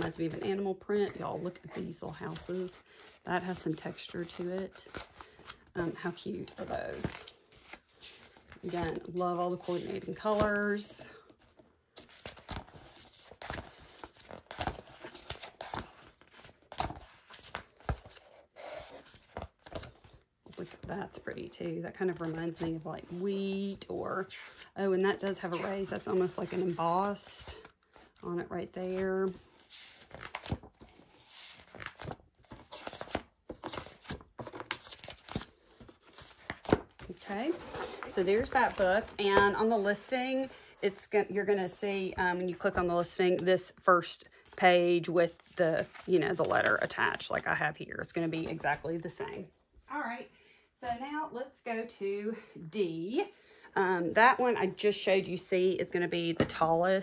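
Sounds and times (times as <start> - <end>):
pages flipping: 11.5 - 20.7, 28.9 - 40.5.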